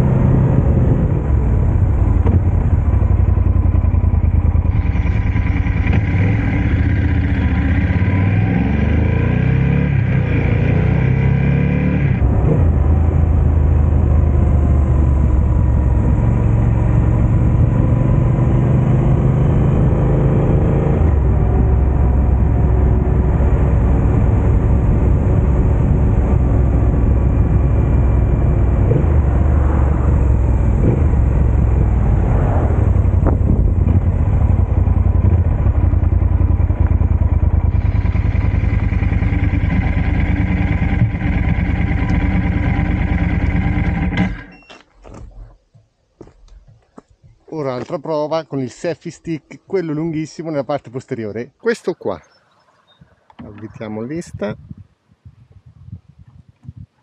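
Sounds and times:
motorcycle engine running: 0.0s - 18.3s, 32.8s - 44.5s.

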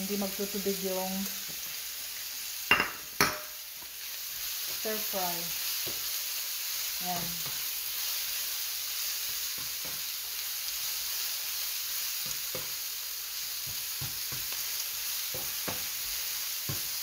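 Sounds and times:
mushrooms sizzling in oil: 0.0s - 17.0s
spatula tapping and scraping pan: 5.8s - 6.1s, 7.2s - 7.7s, 9.2s - 10.1s, 12.2s - 12.8s, 13.6s - 17.0s.

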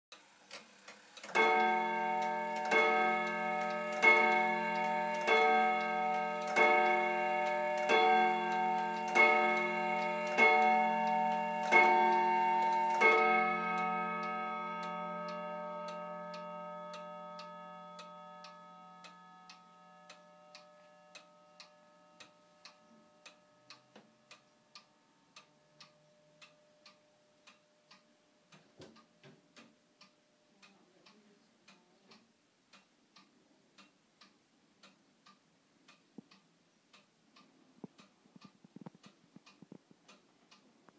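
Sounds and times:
pendulum clock ticking: 0.1s - 40.9s
clock striking gong: 1.3s - 24.2s.

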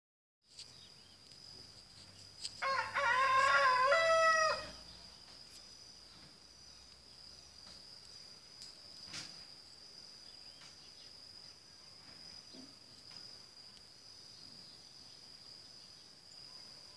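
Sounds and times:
high-pitched insect whine: 0.5s - 16.9s
rooster crowing: 2.6s - 4.8s.

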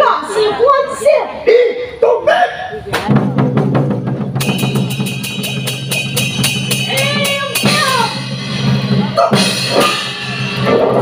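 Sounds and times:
fast drum strokes: 2.9s - 11.0s.

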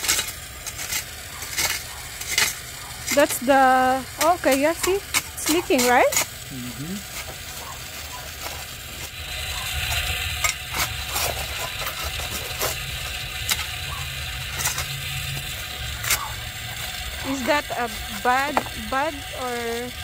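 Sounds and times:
stones scraping against spade: 0.0s - 3.5s, 7.1s - 19.5s
spade digging into soil and gravel: 0.0s - 6.4s, 7.1s - 19.4s.

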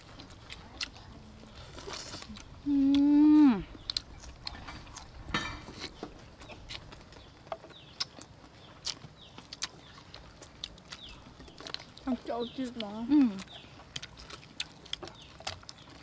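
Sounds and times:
wet chewing and lip smacks: 0.0s - 16.0s
woman saying mmm: 2.6s - 3.7s.

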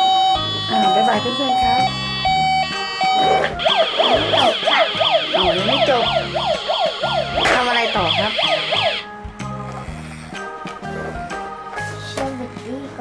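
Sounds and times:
toy electronic siren warbling: 0.0s - 9.1s.

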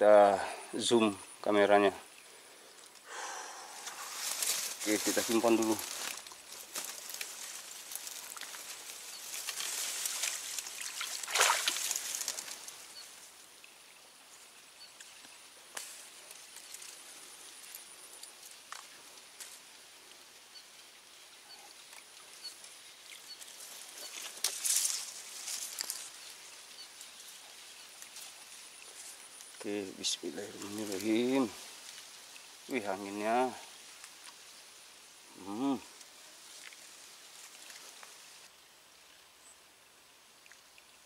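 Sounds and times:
rustling hissy noise: 0.0s - 41.0s.

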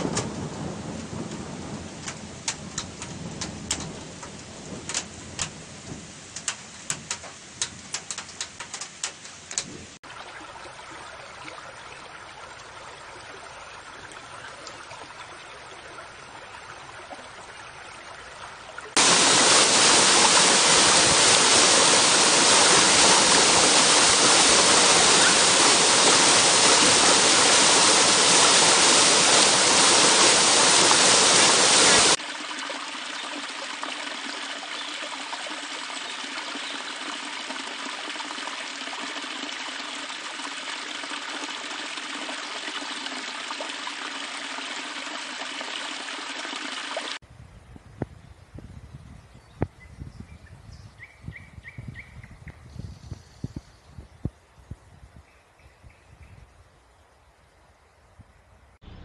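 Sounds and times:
creek flowing: 0.0s - 47.2s
rushing water: 0.0s - 47.2s
water splashing: 16.2s - 47.2s.

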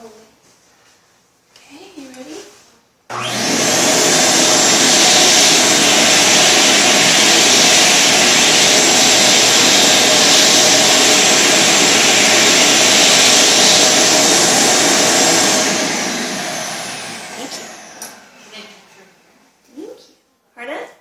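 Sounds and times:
pet blow dryer running: 3.1s - 18.8s.

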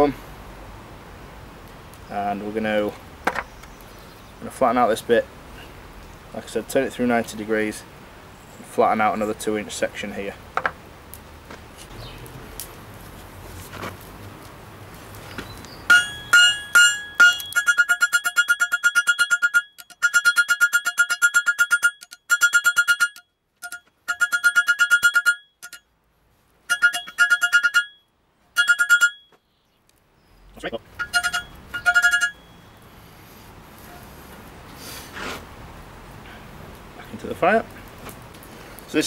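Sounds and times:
hammer striking steel on anvil: 15.9s - 25.8s, 26.7s - 28.0s, 28.6s - 29.2s, 31.0s - 32.4s.

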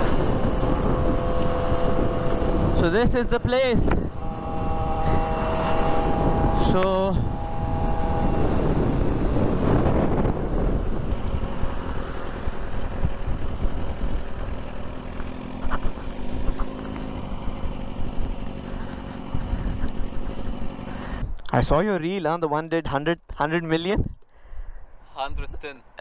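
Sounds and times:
motorcycle engine at low revs: 0.0s - 21.8s
wind rumble on microphone: 0.0s - 21.8s, 23.8s - 24.2s.

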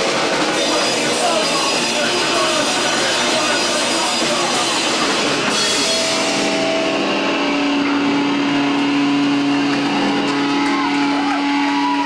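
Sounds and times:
distorted electric guitar: 0.0s - 12.0s
punk band playing: 0.0s - 12.0s
cymbal crash: 5.0s - 10.6s.

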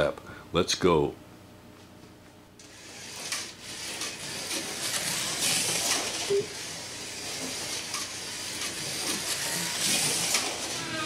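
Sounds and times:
slot car motor rushing: 2.6s - 11.0s.

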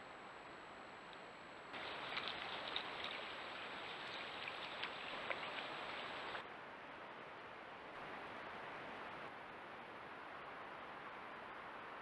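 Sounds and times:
steady hiss: 0.0s - 6.5s
faint ticks: 1.8s - 6.4s.

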